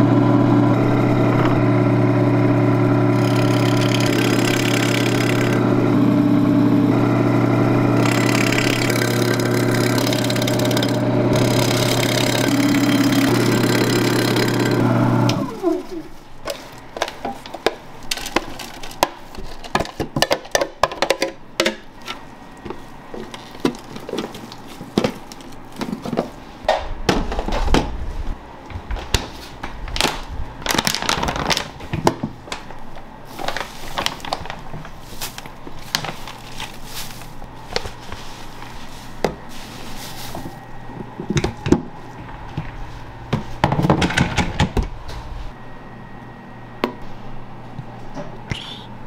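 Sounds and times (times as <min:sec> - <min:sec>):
plastic bag crinkling: 0:22.8 - 0:25.8, 0:29.9 - 0:40.6.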